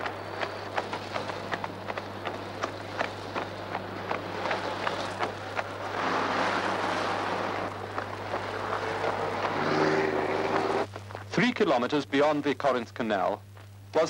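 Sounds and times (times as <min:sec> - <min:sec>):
broad rushing noise: 0:00.0 - 0:10.9
footsteps on pavement: 0:00.0 - 0:11.4, 0:13.5 - 0:13.8
low hum: 0:00.0 - 0:11.4.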